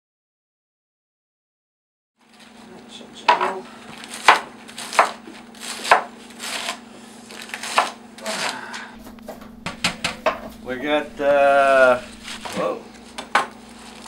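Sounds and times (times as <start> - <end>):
knife chopping lettuce on board: 3.3 - 6.8, 7.4 - 8.6
steady low hum: 8.6 - 14.0.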